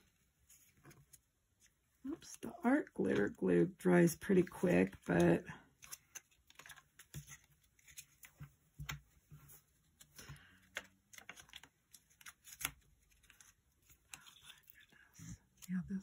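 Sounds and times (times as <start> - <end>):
cardstock clicking and rustling: 4.6 - 9.1, 9.9 - 14.6.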